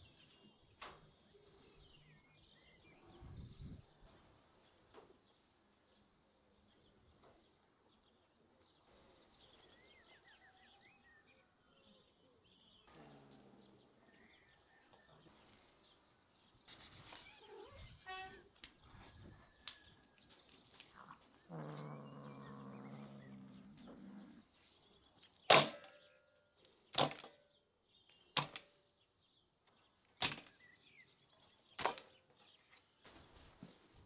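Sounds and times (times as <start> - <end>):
cat growling: 12.8 - 14.2, 20.9 - 24.6.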